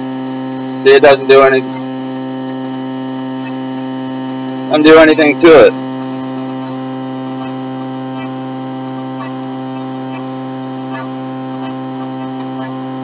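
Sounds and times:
electric motor hum: 0.0s - 13.0s.

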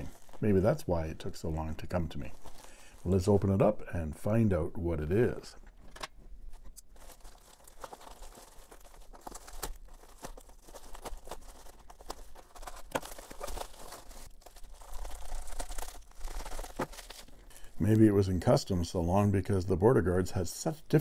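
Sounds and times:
plastic mailer tearing and crinkling: 0.0s - 3.7s, 5.9s - 18.0s.

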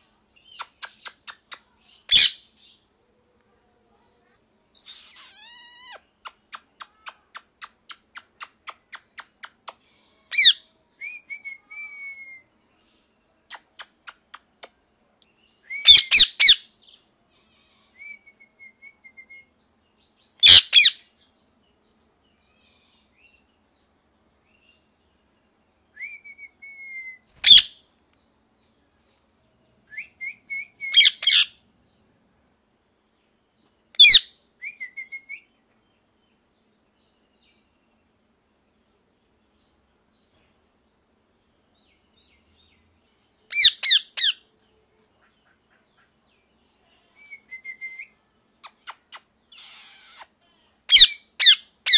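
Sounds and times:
parakeet screeching: 2.1s - 2.4s, 4.8s - 6.0s, 20.4s - 20.9s, 27.4s - 27.7s, 31.0s - 31.5s, 43.5s - 44.4s.

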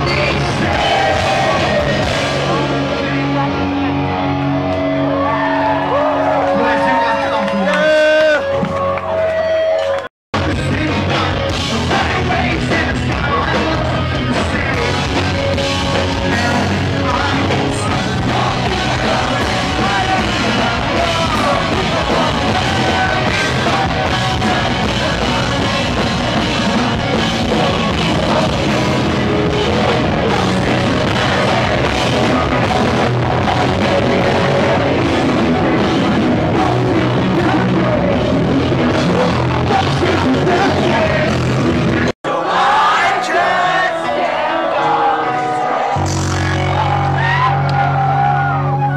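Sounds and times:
live pop-punk band playing: 0.0s - 6.0s, 10.4s - 48.9s
person singing: 10.4s - 41.6s.

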